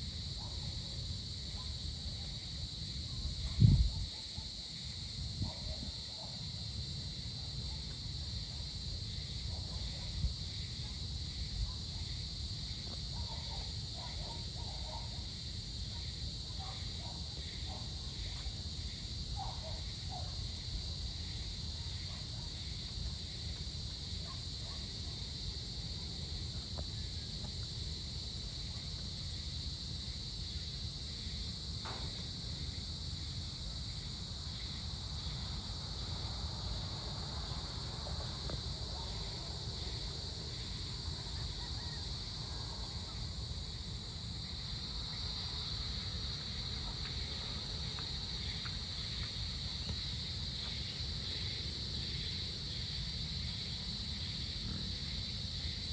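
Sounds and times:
insects trilling: 0.0 - 55.9
pulsing insect call: 32.5 - 55.9.

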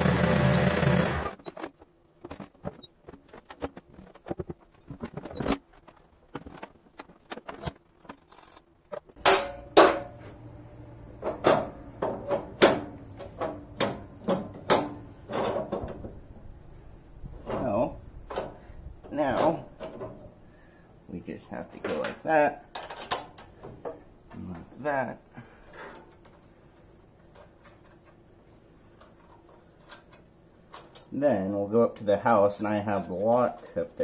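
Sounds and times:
loud steady machine: 0.0 - 1.4.

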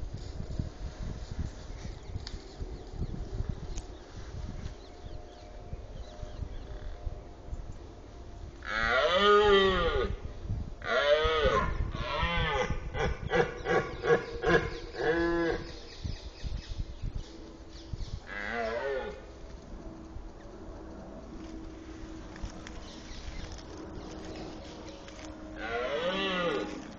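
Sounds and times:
deer stag roaring: 8.6 - 10.2, 18.3 - 19.3, 25.6 - 26.9.

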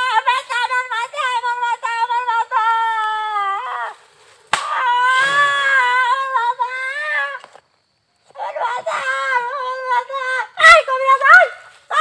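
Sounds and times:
sharp smack: 4.5 - 4.8.

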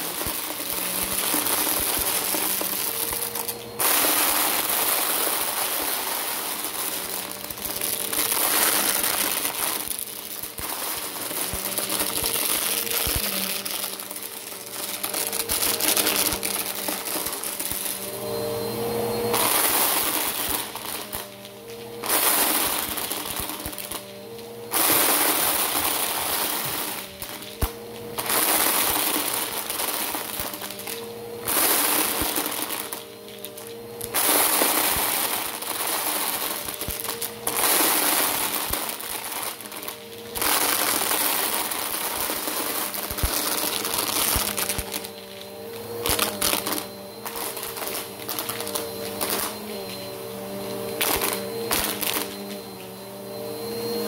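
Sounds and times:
plastic cubes rattling: 0.0 - 3.0, 3.8 - 17.8, 35.6 - 45.1
vacuum cleaner motor hum: 0.0 - 54.0.

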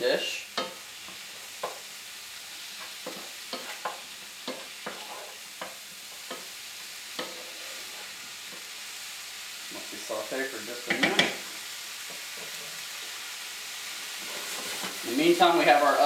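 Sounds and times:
mushrooms sizzling in oil: 0.0 - 16.0
wooden spatula scraping pan: 2.8 - 6.5, 7.2 - 8.6, 14.2 - 15.2.

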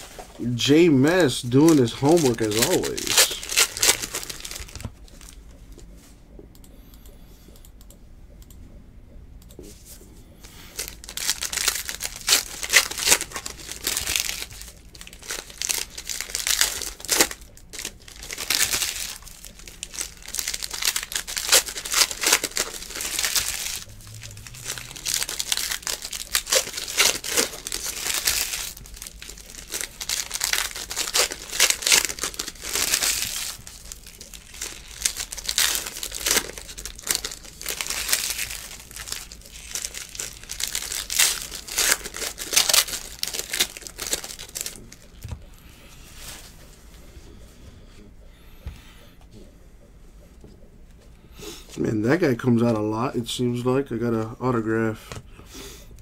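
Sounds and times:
foil wrappers crinkling and tearing: 0.0 - 5.4, 10.4 - 45.4.

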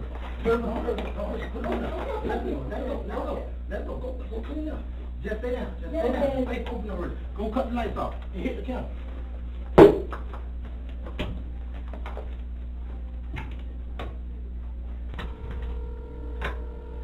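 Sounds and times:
steady low hum: 0.0 - 17.0
sharp loud knock: 9.8 - 10.1
electronic tone: 15.2 - 17.0.

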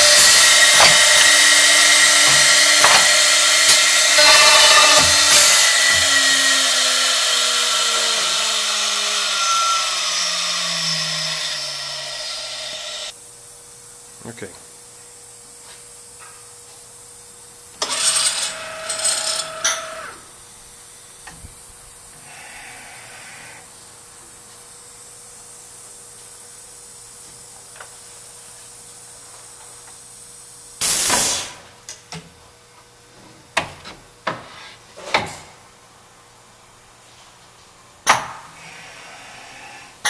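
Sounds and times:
pneumatic hiss: 0.0 - 7.4, 30.8 - 31.7
sharp burst of air: 30.8 - 31.6.

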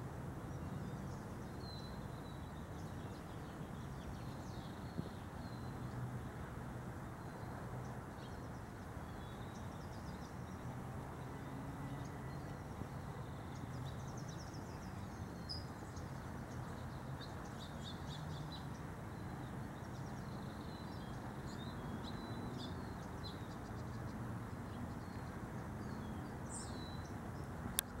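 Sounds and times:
low background noise: 0.0 - 28.0
small birds chirping: 11.9 - 28.0.

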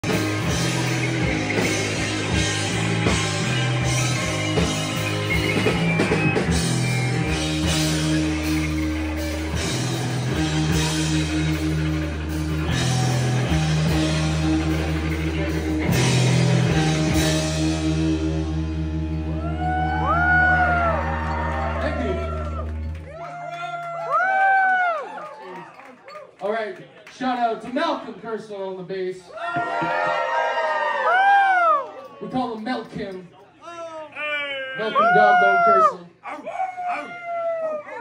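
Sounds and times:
bass guitar: 0.0 - 24.5
electric guitars: 0.0 - 24.6
drums: 0.0 - 25.8.

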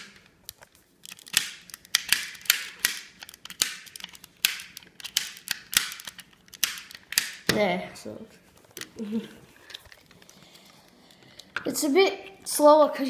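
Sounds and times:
plastic puzzle ball clicking: 0.0 - 7.6.

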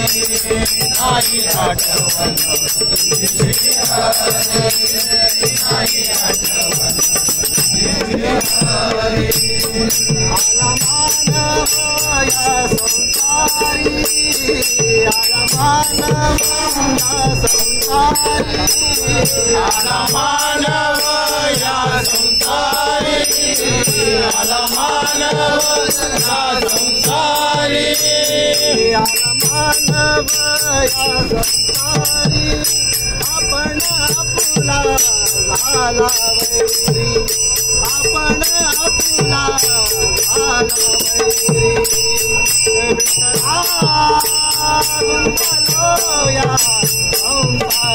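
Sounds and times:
brass hand cymbals ringing: 0.0 - 47.9
men singing devotional song: 0.0 - 47.9
tabla drum strokes: 0.0 - 47.9.

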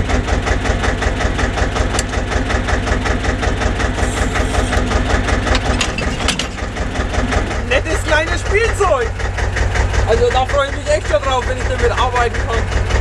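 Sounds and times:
tractor diesel engine idling: 0.0 - 13.0
metallic clicks and clanks: 5.4 - 6.8.

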